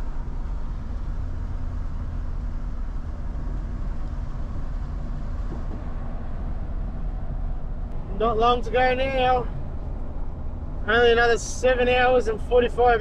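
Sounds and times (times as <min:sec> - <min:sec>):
tyre and wind noise: 0:00.0 - 0:08.3
car road and engine rumble: 0:00.0 - 0:13.0
faint steady hum: 0:00.0 - 0:13.0.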